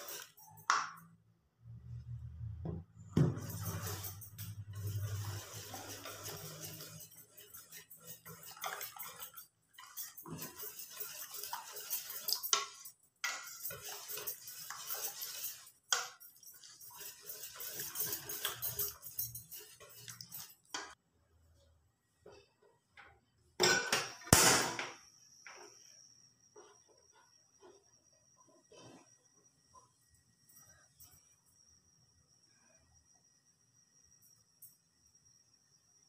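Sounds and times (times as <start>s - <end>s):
whisk clinking against metal bowl: 0.0s - 1.0s, 3.2s - 21.0s.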